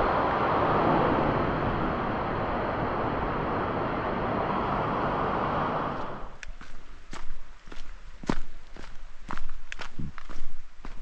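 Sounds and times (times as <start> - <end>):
waterfall rushing: 0.0 - 6.3
footsteps on trail: 6.4 - 11.0.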